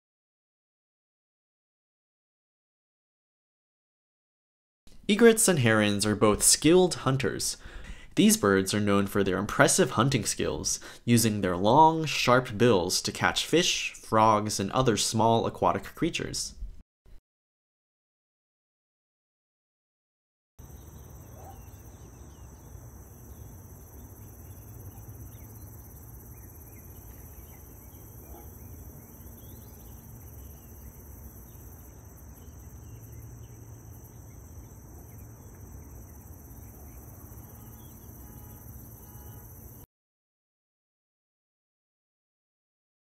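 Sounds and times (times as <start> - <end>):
high-pitched insect trill: 20.6 - 39.9.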